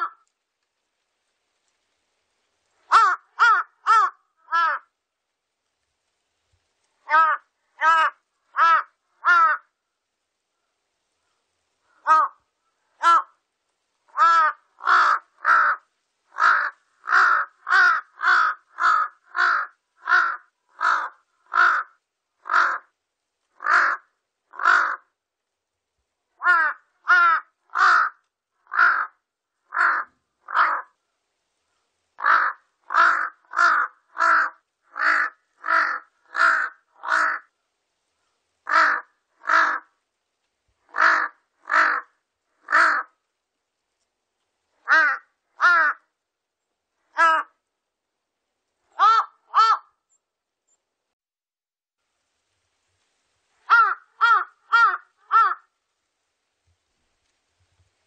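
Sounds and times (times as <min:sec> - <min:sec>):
crow cawing: 0:00.0 - 0:00.3, 0:02.9 - 0:04.9, 0:07.0 - 0:09.8, 0:11.9 - 0:13.4, 0:14.1 - 0:22.9, 0:23.6 - 0:25.2, 0:26.4 - 0:31.0, 0:32.2 - 0:37.6, 0:38.6 - 0:40.0, 0:40.9 - 0:43.2, 0:44.8 - 0:46.1, 0:47.1 - 0:47.6, 0:48.9 - 0:50.0, 0:53.6 - 0:55.7.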